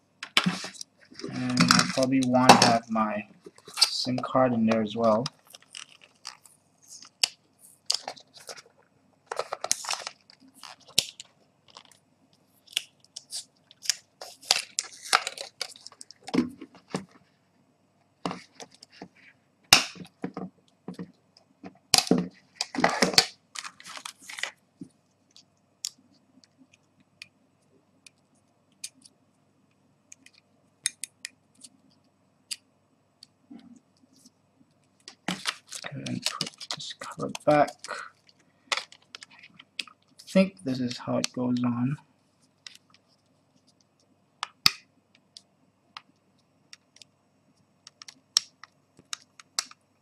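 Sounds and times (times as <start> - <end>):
crinkly rustles: 5.0 - 12.0, 22.3 - 24.6, 35.1 - 41.8.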